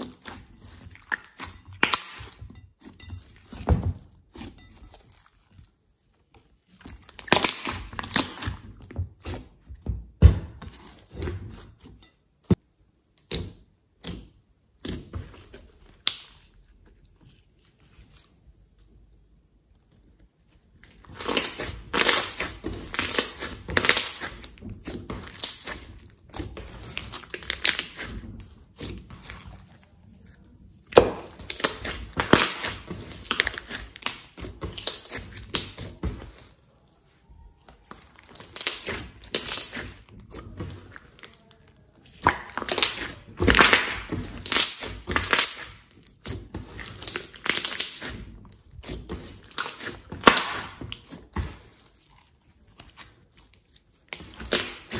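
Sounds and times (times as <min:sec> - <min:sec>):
slime crackling and popping: 0:00.0 - 0:02.4, 0:06.6 - 0:09.4, 0:13.2 - 0:16.8, 0:20.8 - 0:54.9.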